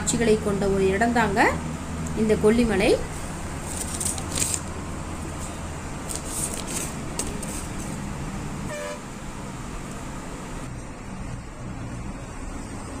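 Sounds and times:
bus engine running: 0:00.0 - 0:13.0
road noise: 0:00.0 - 0:13.0
horn toot: 0:08.7 - 0:09.2.

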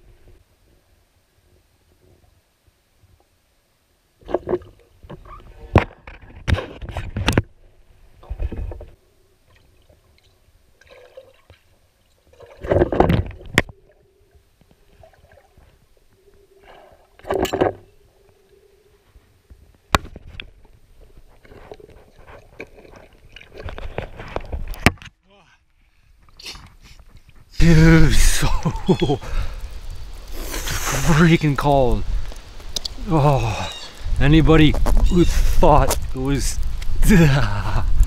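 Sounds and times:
water gurgling and sloshing: 0:04.2 - 0:24.9.

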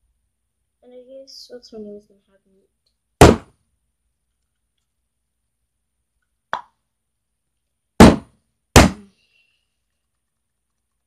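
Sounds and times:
loud sharp thumps: 0:03.2 - 0:03.6, 0:08.0 - 0:09.0.

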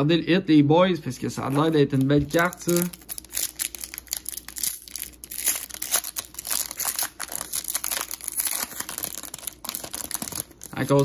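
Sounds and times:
foil wrapper tearing and crinkling: 0:01.5 - 0:11.0.

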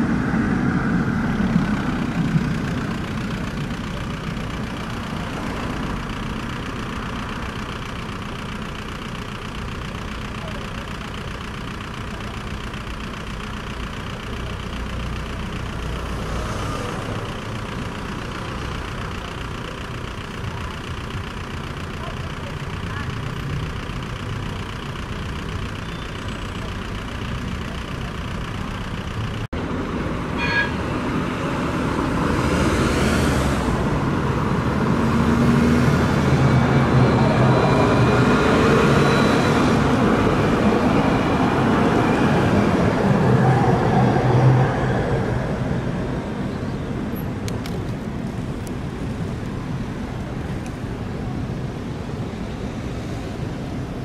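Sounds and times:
street noise: 0:00.0 - 0:54.0
tram passing: 0:00.0 - 0:54.0.

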